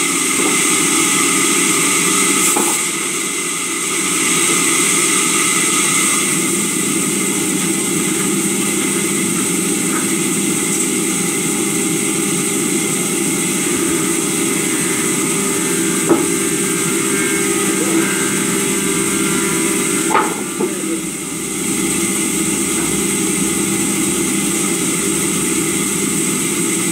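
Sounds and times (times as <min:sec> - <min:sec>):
sawmill saw machinery running: 0:00.0 - 0:26.9.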